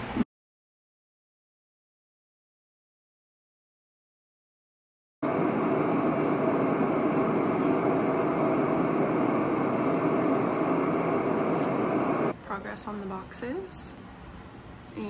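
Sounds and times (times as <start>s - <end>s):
white noise machine rushing: 5.2s - 12.4s.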